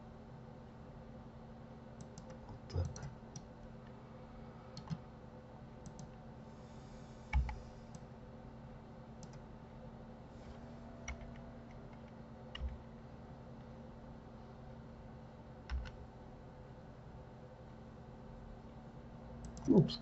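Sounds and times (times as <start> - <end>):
faint electrical hum: 0.0 - 20.0
keyboard and mouse clicks: 2.0 - 3.5, 4.8 - 5.0, 5.8 - 6.1, 11.0 - 12.8, 15.7 - 16.0, 19.4 - 19.8.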